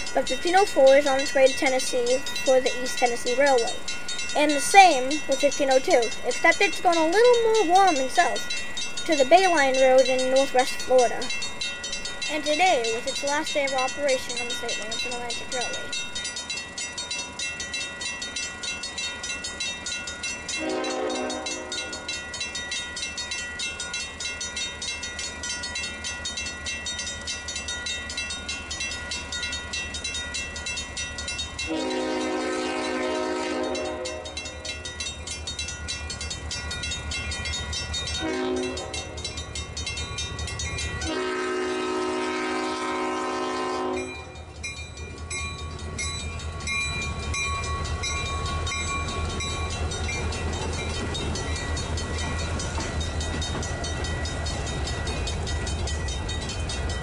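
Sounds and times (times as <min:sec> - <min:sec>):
locomotive engine rumble: 0:00.0 - 0:16.8, 0:28.1 - 0:57.0
crossing warning bell ringing: 0:00.0 - 0:57.0
locomotive air horn blasts: 0:20.6 - 0:21.9, 0:31.7 - 0:34.4, 0:38.2 - 0:39.2, 0:41.0 - 0:44.2.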